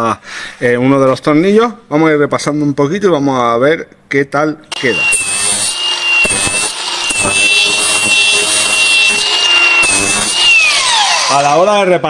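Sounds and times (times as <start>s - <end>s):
power grinder motor whine: 4.7s - 11.7s
abrasive rasping on metal: 5.1s - 10.6s.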